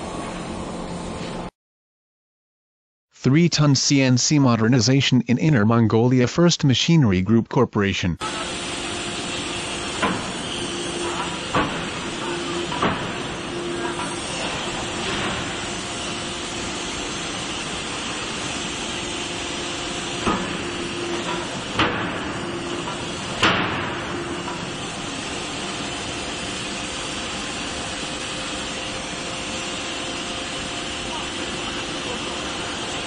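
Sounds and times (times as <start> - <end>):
shop machinery hum and hiss: 0.0 - 1.5, 8.2 - 33.0.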